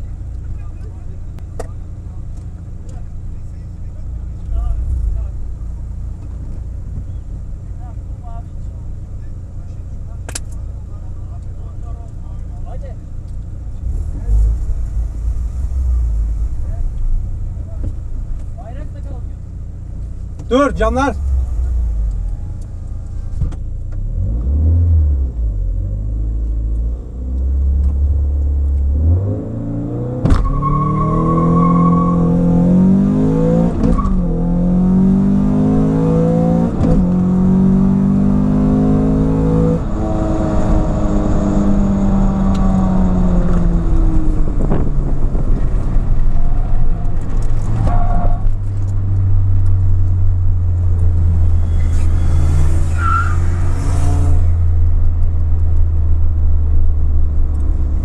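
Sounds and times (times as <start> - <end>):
car engine revving through gears: 23.9 - 55.9.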